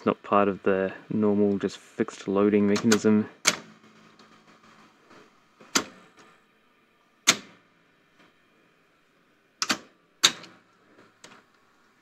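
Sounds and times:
vcr solenoids clacking: 0:02.2 - 0:06.4, 0:07.2 - 0:07.6, 0:09.6 - 0:11.6.

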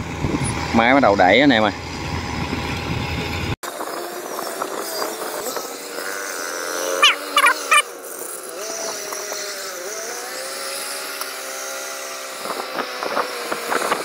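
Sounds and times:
high-pitched calls: 0:07.0 - 0:07.9.

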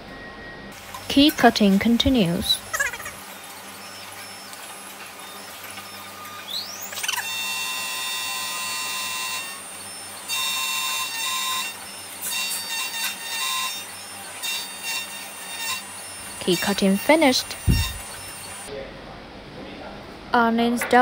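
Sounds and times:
key cutter high whine: 0:00.0 - 0:18.7
low motor hum: 0:16.0 - 0:18.7.

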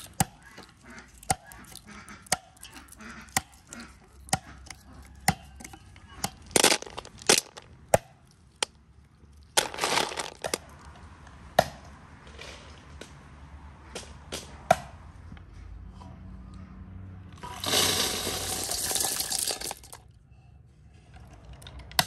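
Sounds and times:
leafy husks crackling and rustling: 0:00.0 - 0:07.8, 0:09.4 - 0:10.9
nuts clicking together: 0:00.0 - 0:08.8.

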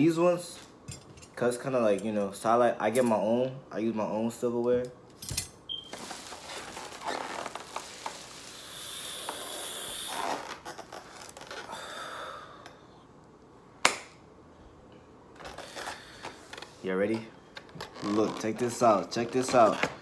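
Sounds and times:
plastic bag rustling: 0:05.8 - 0:08.9.

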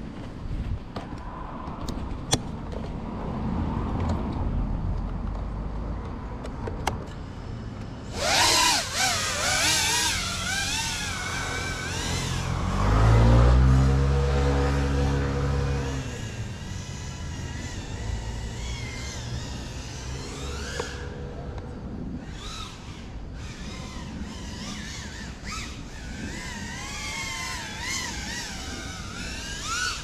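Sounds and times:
quadcopter motors humming: 0:05.4 - 0:30.0
wavering whine with bending pitch: 0:08.0 - 0:30.0.

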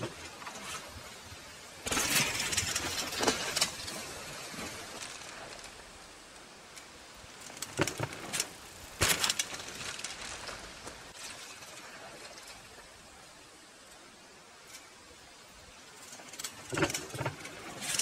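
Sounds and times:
bike rattling: 0:00.0 - 0:18.0
bike landing thud: 0:01.8 - 0:05.5, 0:07.5 - 0:11.3
bike clattering off wooden ramp: 0:01.8 - 0:05.8, 0:07.3 - 0:12.4, 0:16.2 - 0:18.0.

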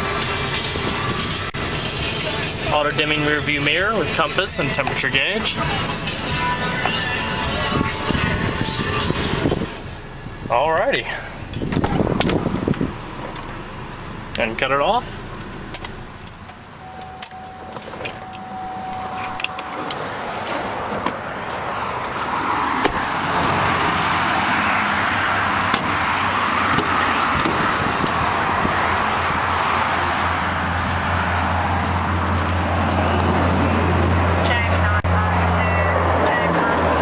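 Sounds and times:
highway traffic rush: 0:00.0 - 0:37.0
low hum: 0:15.2 - 0:22.2
car door clicks and latch: 0:15.7 - 0:21.6, 0:22.7 - 0:23.0, 0:25.7 - 0:26.0, 0:26.7 - 0:28.2
steady tone: 0:16.7 - 0:26.6.

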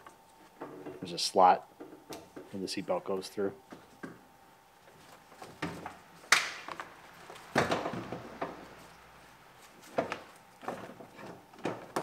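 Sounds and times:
rustling: 0:04.8 - 0:12.0.

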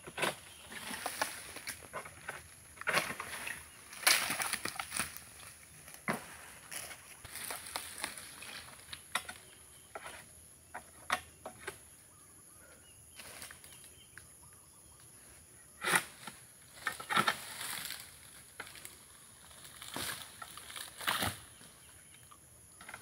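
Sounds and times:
rustling scrapes of fronds: 0:00.0 - 0:10.1, 0:16.0 - 0:22.0
pole knocking and scraping fronds: 0:00.0 - 0:11.8, 0:15.8 - 0:18.9, 0:19.5 - 0:21.8.

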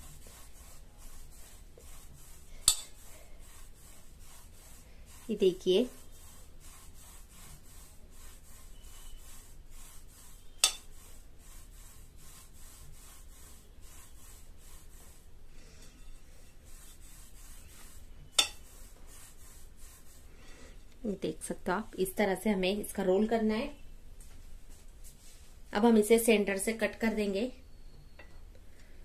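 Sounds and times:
palms rolling dough on plate: 0:00.0 - 0:20.8.

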